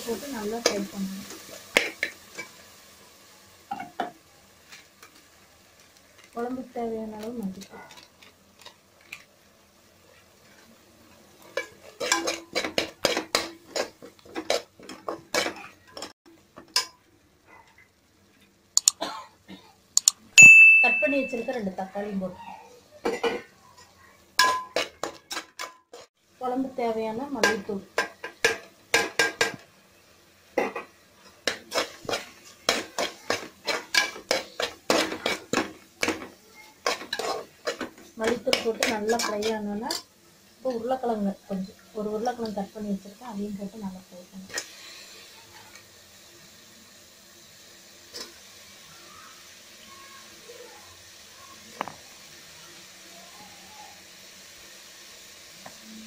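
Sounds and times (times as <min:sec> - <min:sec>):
thick sauce frying: 0:00.0 - 0:56.0
spoon scraping and knocking metal pan: 0:11.4 - 0:17.0, 0:23.0 - 0:26.1, 0:27.3 - 0:29.7, 0:30.6 - 0:40.1.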